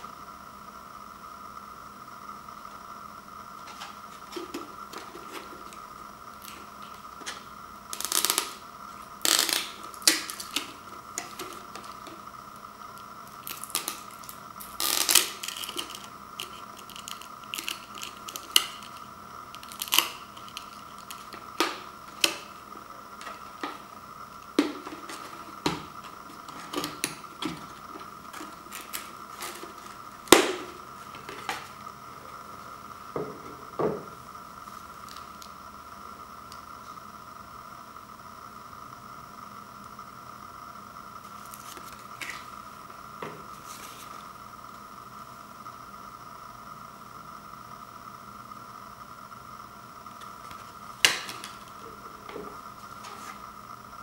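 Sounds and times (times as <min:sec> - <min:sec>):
faint steady hum: 0:00.0 - 0:54.0
packaging crinkling and scraping: 0:09.2 - 0:12.2, 0:13.3 - 0:23.9, 0:24.6 - 0:31.8.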